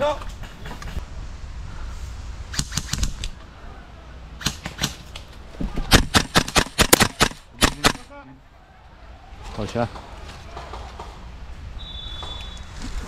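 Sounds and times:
airsoft rifle firing shots: 5.9s - 8.1s.

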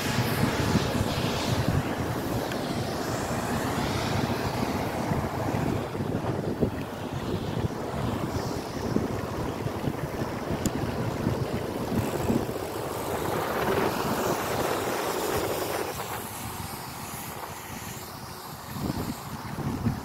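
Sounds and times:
wind buffeting microphone: 0.0s - 20.0s
tyres on wet road: 10.2s - 19.2s.

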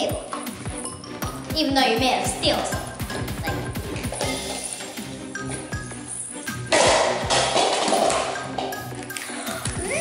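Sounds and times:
music with steady drum beat: 0.4s - 5.2s.

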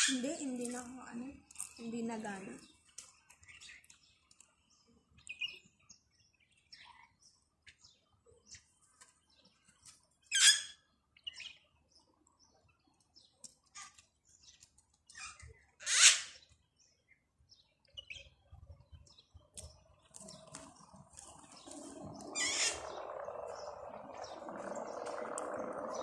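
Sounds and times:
birds chirping: 0.0s - 26.0s
harsh bird call: 21.5s - 26.0s.

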